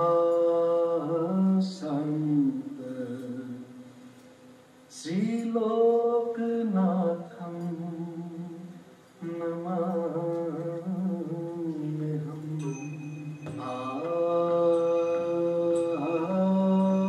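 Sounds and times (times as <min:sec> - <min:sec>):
person singing long held notes: 0:05.0 - 0:17.0.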